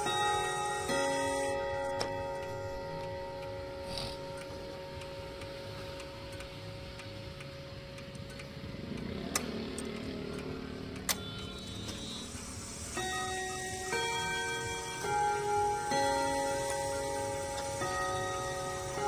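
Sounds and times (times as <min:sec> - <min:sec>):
clock chime rods ringing: 0:00.0 - 0:19.0
clock movement whirring: 0:00.0 - 0:19.0
sharp clicks: 0:06.2 - 0:12.4.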